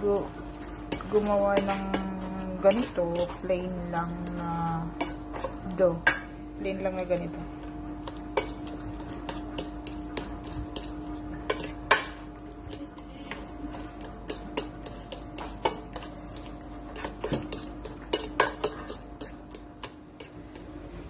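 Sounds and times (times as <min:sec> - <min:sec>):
steady low hum: 0:00.0 - 0:21.0
fork scraping a metal bowl: 0:00.5 - 0:05.6, 0:13.3 - 0:20.6.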